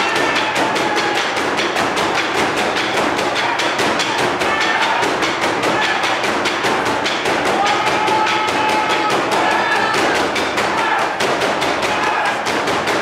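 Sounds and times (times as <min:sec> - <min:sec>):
drum ensemble beating: 0:00.0 - 0:13.0.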